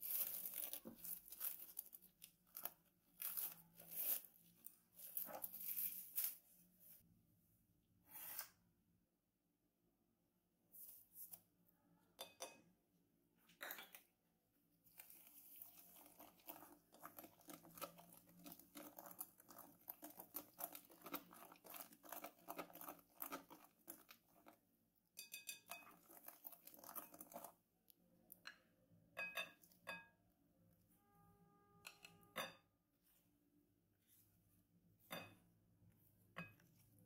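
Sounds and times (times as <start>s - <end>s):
whisk beating batter in glass bowl: 15.0s - 27.6s.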